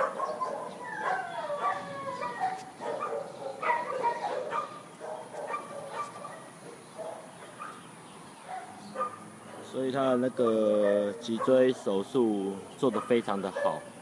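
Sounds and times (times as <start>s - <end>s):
dog whining: 0.1s - 4.6s.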